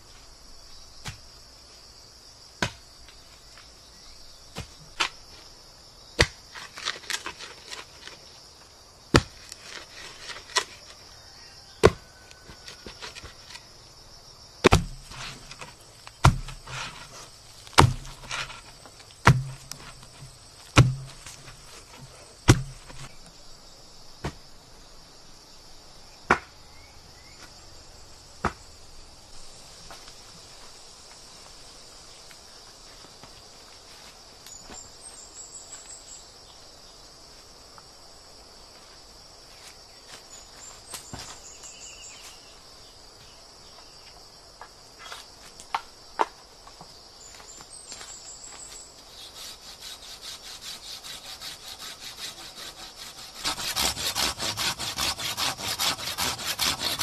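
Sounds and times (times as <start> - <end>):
insects droning: 0.0 - 57.0
wooden pole knocking into soil: 9.1 - 10.8, 14.6 - 23.2.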